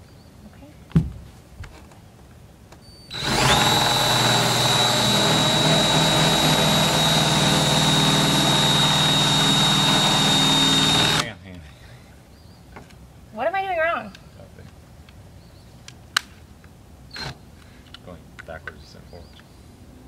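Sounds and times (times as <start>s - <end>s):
power drill whining: 3.1s - 11.3s.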